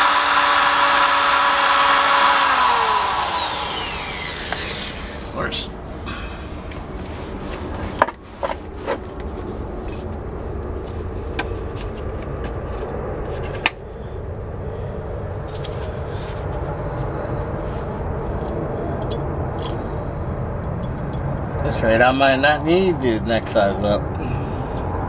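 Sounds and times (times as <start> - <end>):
drill bit clicking: 0.0 - 5.3
electric drill drilling into bolt: 0.0 - 5.4.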